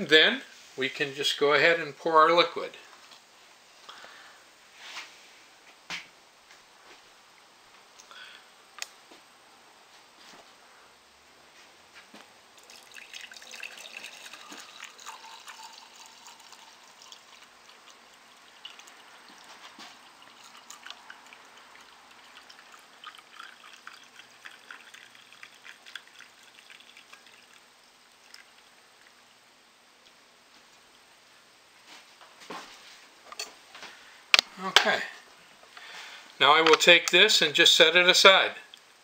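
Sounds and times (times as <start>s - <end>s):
liquid trickling into a glass: 12.6s - 29.2s.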